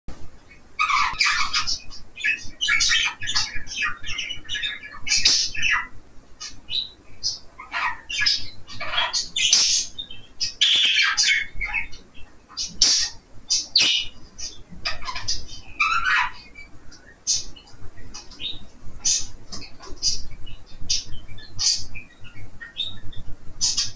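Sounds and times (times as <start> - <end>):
budgerigar warbling and chattering: 0.8 - 16.6
budgerigar squawks: 7.6 - 9.9, 10.6 - 11.8, 12.6 - 14.2.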